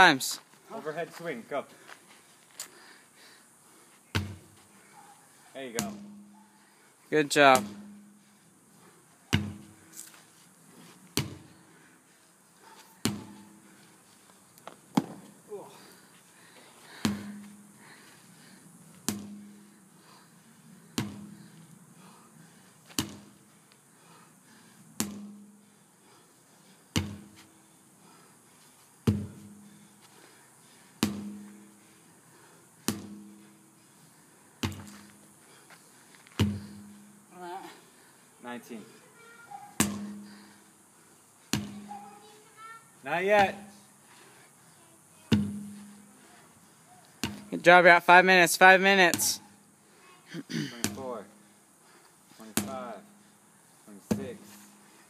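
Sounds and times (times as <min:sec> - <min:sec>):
sledgehammer striking a tire: 0:04.2 - 0:04.5, 0:05.8 - 0:06.4, 0:07.5 - 0:08.2, 0:09.3 - 0:09.7, 0:17.0 - 0:17.5, 0:19.0 - 0:19.7, 0:21.0 - 0:21.4, 0:25.0 - 0:25.5, 0:27.0 - 0:27.4, 0:29.0 - 0:29.5, 0:31.0 - 0:31.6, 0:32.9 - 0:33.5, 0:34.6 - 0:35.0, 0:36.4 - 0:36.9, 0:39.8 - 0:40.4, 0:45.3 - 0:46.0, 0:54.1 - 0:54.5
hammer striking tire: 0:31.0 - 0:31.5, 0:36.4 - 0:36.8.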